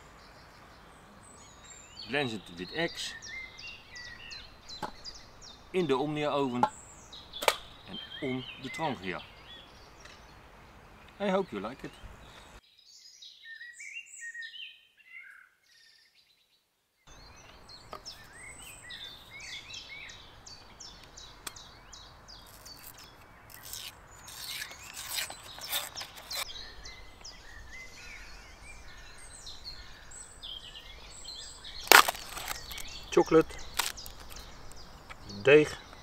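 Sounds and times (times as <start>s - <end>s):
birds chirping and singing: 0.0s - 16.4s, 17.1s - 36.0s
faint outdoor hiss: 0.0s - 36.0s
cardboard dough tube cracking open: 22.4s - 26.5s, 31.8s - 33.0s, 33.6s - 34.5s.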